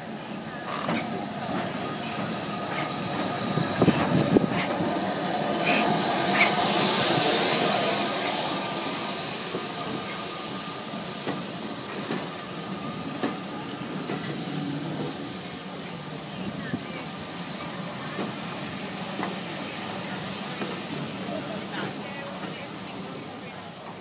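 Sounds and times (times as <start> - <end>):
loud hiss of steam: 0.0 - 24.0
steam locomotive passing: 0.0 - 24.0.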